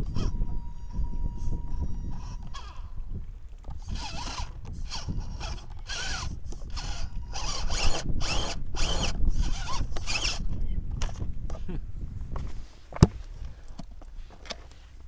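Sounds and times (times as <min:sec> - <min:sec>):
electric motor and gears whining: 0:00.0 - 0:11.6.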